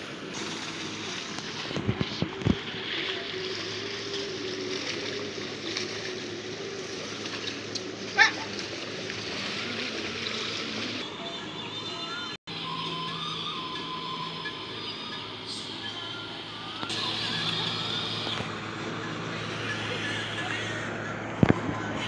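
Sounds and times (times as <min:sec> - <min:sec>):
hooves sloshing in mud: 0:00.0 - 0:11.0.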